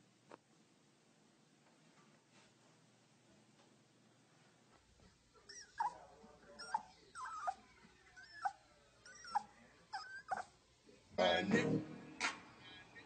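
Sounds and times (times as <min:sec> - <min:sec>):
dog whimpering: 0:05.4 - 0:06.0, 0:06.6 - 0:10.6.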